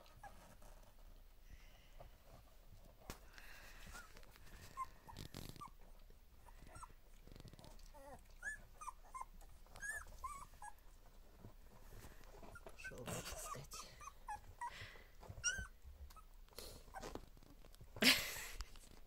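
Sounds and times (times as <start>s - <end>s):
rustling and scraping on bedding: 0.0s - 19.0s
puppies whimpering: 3.7s - 17.3s.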